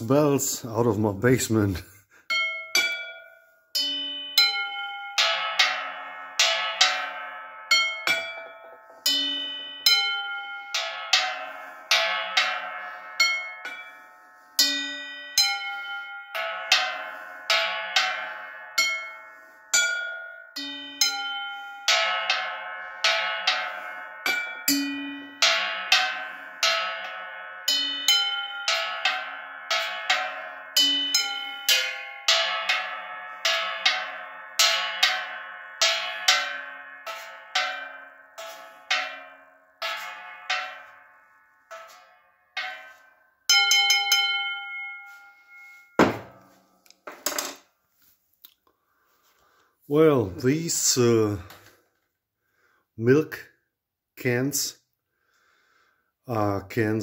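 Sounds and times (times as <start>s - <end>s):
mallet striking metal lids: 2.4s - 11.4s, 41.7s - 47.4s.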